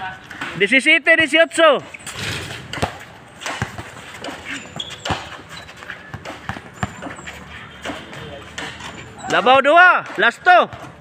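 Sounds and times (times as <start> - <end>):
basketball bouncing on concrete: 1.8 - 11.0
players' voices: 5.8 - 10.9.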